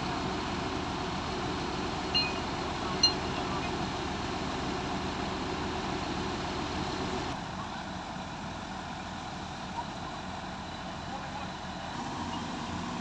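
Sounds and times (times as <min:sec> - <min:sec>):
excavator diesel engine idling: 0:00.0 - 0:13.0.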